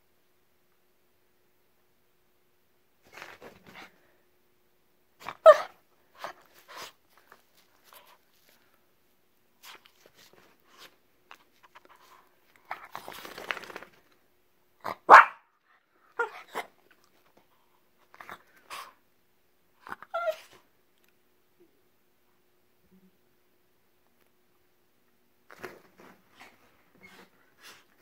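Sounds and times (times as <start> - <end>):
small dog barking: 5.2 - 5.8, 14.8 - 15.5.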